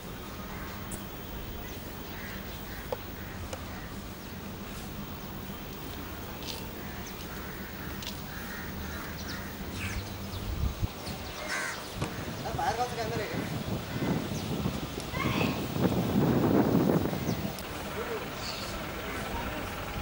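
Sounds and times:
short bird calls: 0:06.5 - 0:10.2, 0:17.0 - 0:19.9.

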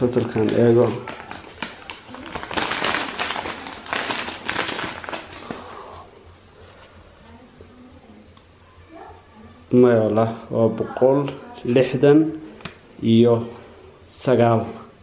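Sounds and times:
paper rustling and crinkling: 0:00.0 - 0:05.8.

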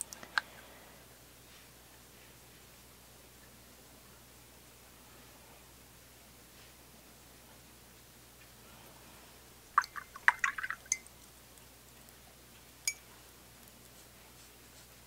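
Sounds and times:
paintbrush rinsed in water: 0:09.8 - 0:11.2.

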